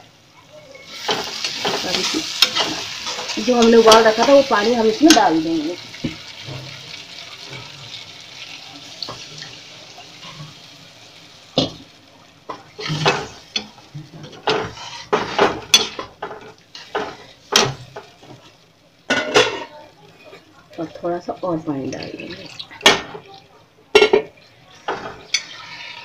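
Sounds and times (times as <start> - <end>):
masala sizzling in a pan: 0.0 - 26.0
spoon scraping a pan: 0.9 - 6.8, 12.6 - 18.5, 24.0 - 26.0.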